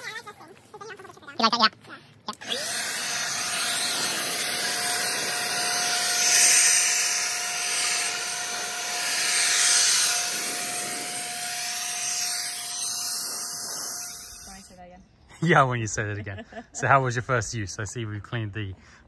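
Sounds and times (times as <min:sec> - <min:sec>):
leaf blower running: 0:02.3 - 0:14.7.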